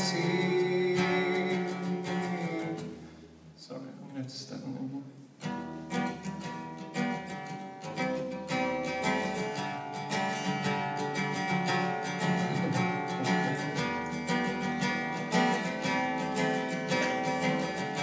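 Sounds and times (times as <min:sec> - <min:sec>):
acoustic guitar strumming chords: 0:00.0 - 0:03.4, 0:05.2 - 0:18.0.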